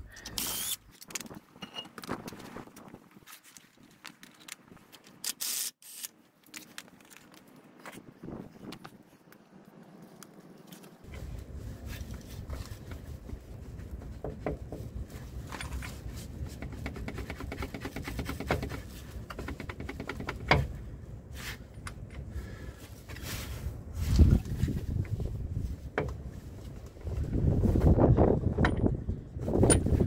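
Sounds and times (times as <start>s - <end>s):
wind buffeting microphone: 8.0s - 9.1s, 11.1s - 30.0s
clicks and knocks of handling metal: 14.0s - 20.8s.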